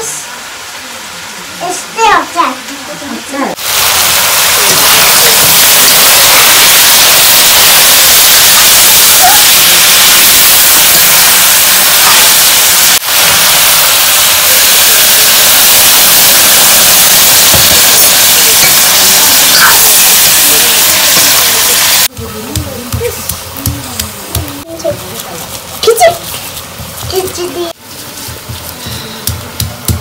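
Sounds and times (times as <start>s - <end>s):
meat sizzling in a wok: 3.5s - 23.8s.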